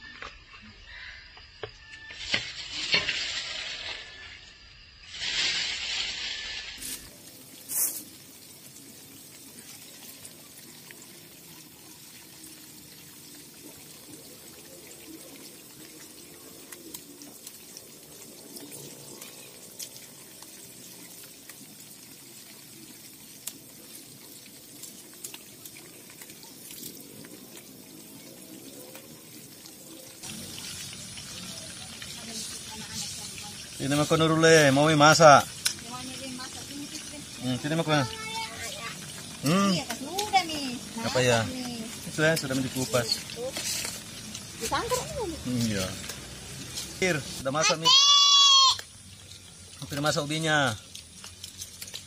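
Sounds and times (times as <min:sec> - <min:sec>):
food sizzling in hot oil: 0:00.8 - 0:52.0.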